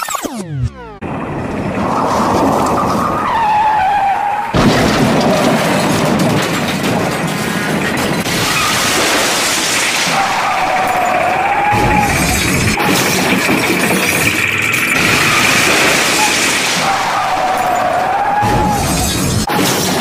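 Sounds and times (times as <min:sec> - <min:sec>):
rushing vehicle noise: 0:00.1 - 0:20.0
squeal-like whine: 0:10.2 - 0:19.5.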